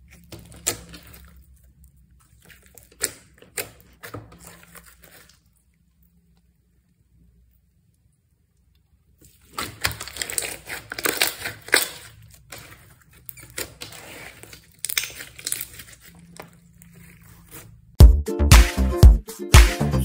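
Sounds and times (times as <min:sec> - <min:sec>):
slime squished by hand: 0:00.0 - 0:05.8, 0:09.2 - 0:17.8
slime crackles and pops: 0:14.7 - 0:16.1.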